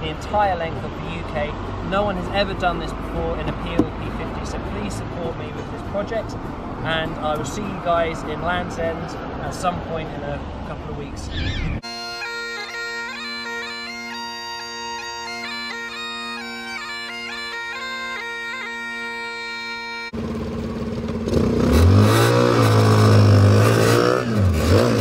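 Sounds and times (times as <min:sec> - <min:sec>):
bagpipes playing a tune: 0:11.8 - 0:20.2
small car engine revving: 0:20.1 - 0:25.0.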